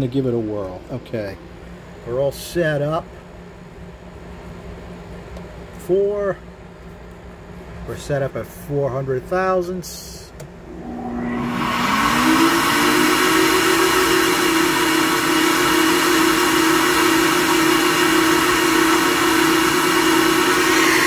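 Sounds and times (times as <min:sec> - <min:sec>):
loud rush of air: 0:10.7 - 0:13.2
motors whining: 0:10.7 - 0:14.4, 0:19.1 - 0:21.0.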